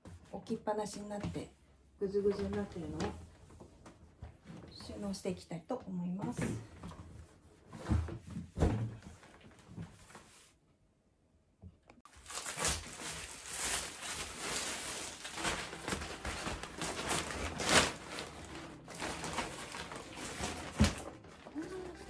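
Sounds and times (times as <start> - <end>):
fabric case rustling and crinkling: 12.1 - 22.0.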